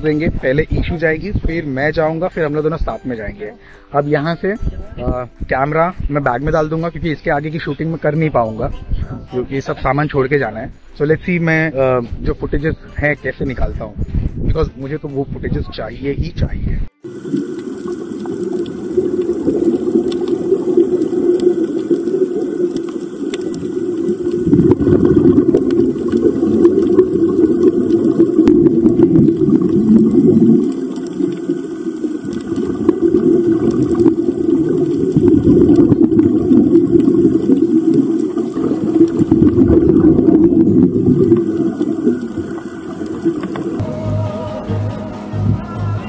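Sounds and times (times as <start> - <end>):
regulator bubbles: 17.0 - 43.8
underwater rushing water: 17.0 - 43.9.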